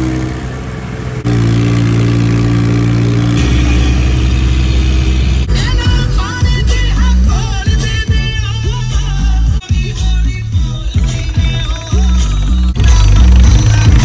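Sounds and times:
tractor engine running: 0:00.0 - 0:14.0
music with singing: 0:05.4 - 0:14.0.

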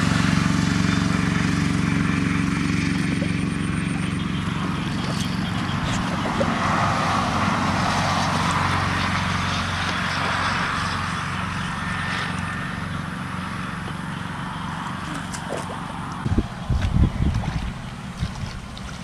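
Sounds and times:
small engine running: 0:00.0 - 0:19.0.

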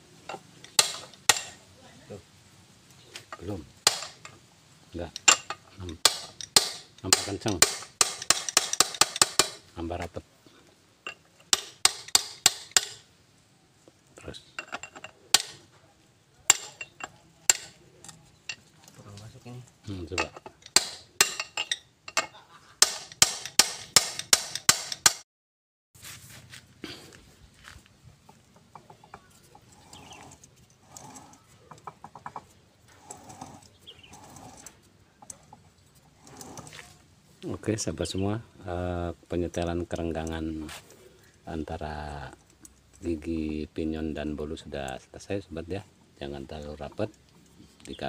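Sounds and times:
bird calls: 0:28.8 - 0:34.6.

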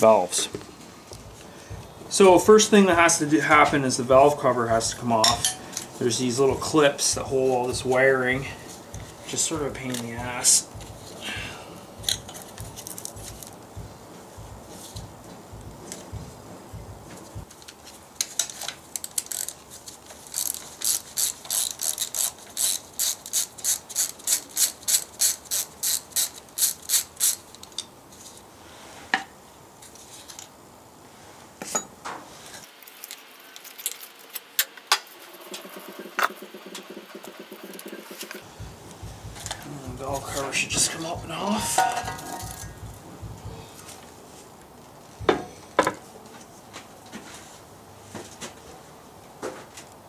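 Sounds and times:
ratchet wrench clicking: 0:12.0 - 0:13.5, 0:18.5 - 0:19.6, 0:20.2 - 0:27.8, 0:42.0 - 0:42.7
nut and cover knocks: 0:41.6 - 0:43.5.

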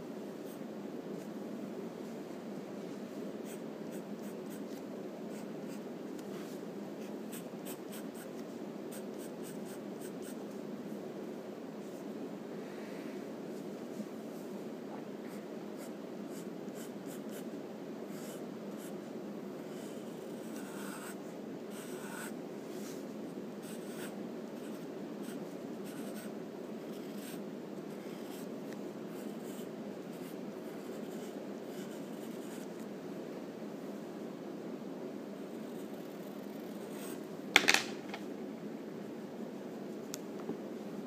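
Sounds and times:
pencil scratching on paper: 0:03.4 - 0:05.8, 0:19.7 - 0:22.4, 0:23.6 - 0:27.4.

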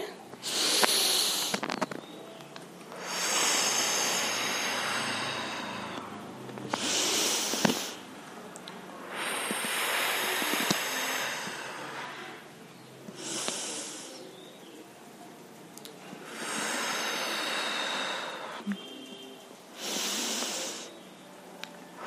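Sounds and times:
woman breathing in sharply: 0:03.0 - 0:08.0.

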